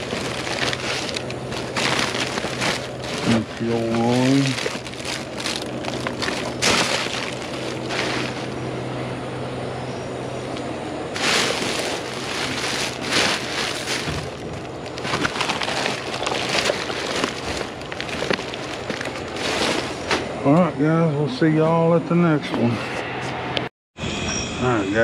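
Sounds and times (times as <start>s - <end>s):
plastic bags rustling: 0.0s - 8.6s, 10.6s - 20.3s
low hum: 0.0s - 25.0s.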